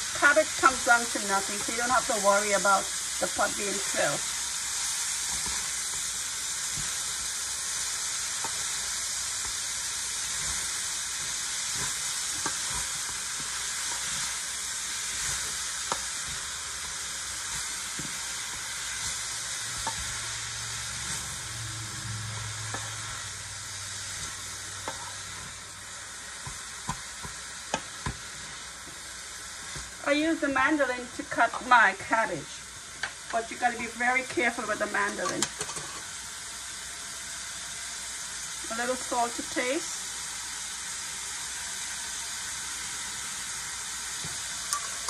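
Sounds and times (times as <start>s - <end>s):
cabbage sizzling in a pot: 0.0s - 45.0s
wooden spatula scraping pot: 24.2s - 25.7s.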